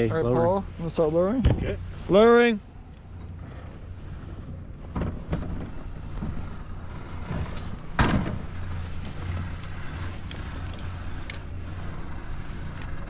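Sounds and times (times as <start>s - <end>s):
steady low rumble: 0.0s - 13.0s
loud clunk: 7.2s - 8.7s.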